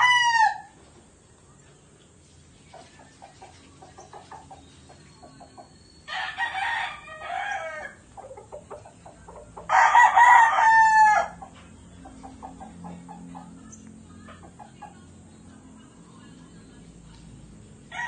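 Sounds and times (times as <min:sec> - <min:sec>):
roosters crowing: 0:00.0 - 0:00.8, 0:02.9 - 0:15.0.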